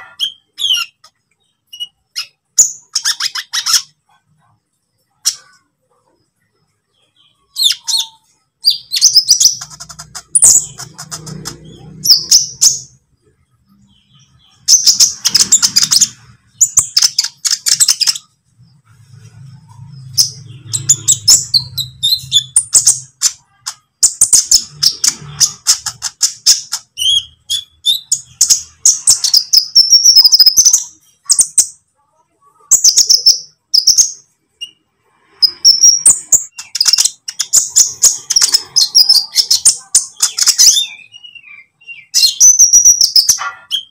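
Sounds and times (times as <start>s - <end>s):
sunbird chirping and twittering: 0.0s - 43.9s.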